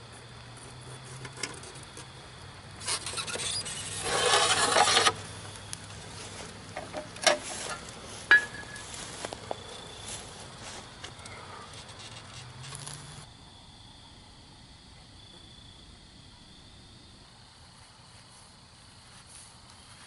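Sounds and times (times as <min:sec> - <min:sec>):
crackles and pops: 0:12.2 - 0:13.3.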